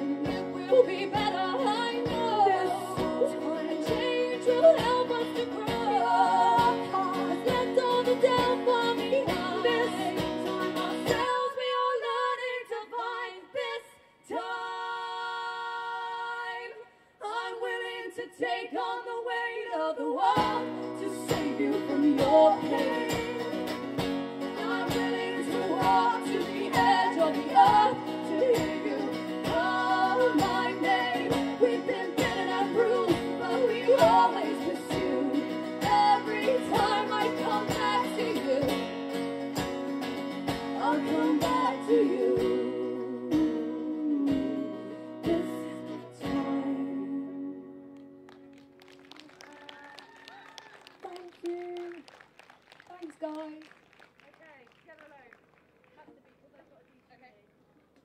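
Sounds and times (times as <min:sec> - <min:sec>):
folk-pop band playing: 0:00.0 - 0:12.7, 0:18.8 - 0:49.9
person singing: 0:00.0 - 0:23.8, 0:24.5 - 0:39.0, 0:40.7 - 0:48.0.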